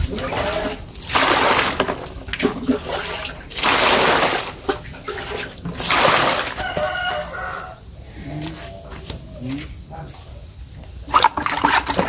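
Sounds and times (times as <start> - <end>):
water splashing into plastic bucket: 0.0 - 7.2, 11.1 - 12.0.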